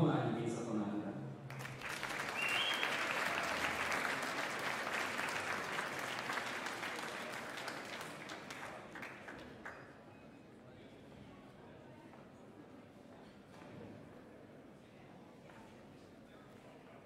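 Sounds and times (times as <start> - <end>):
audience applauding: 1.5 - 9.9.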